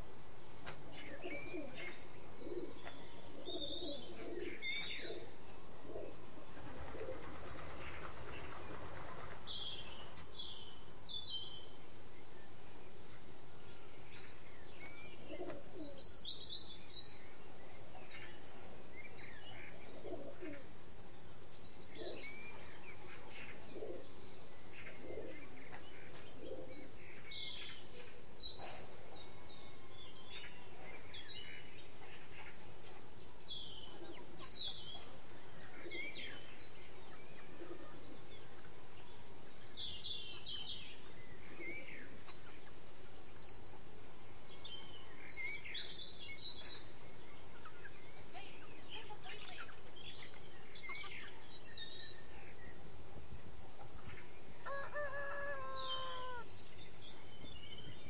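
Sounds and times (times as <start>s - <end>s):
background hiss: 0.0s - 58.0s
small birds chirping: 0.6s - 58.0s
lower bird calls: 54.1s - 58.0s.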